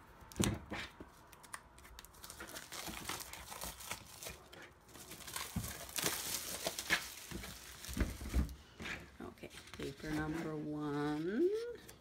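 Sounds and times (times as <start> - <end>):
paper rustling and crinkling: 0.7 - 12.0.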